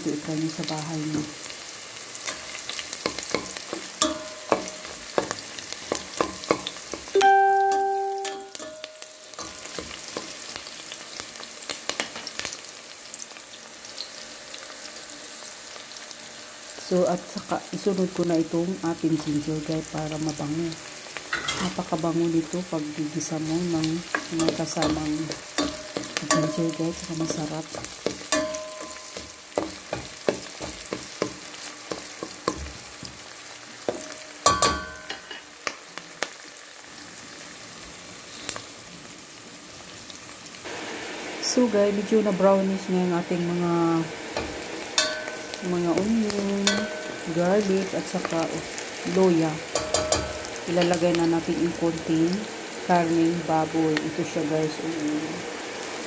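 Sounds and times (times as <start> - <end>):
garlic and onion sizzling in oil: 0.0 - 56.0
clear ringing tone: 7.2 - 9.4
spatula knocking on pot: 25.6 - 32.8.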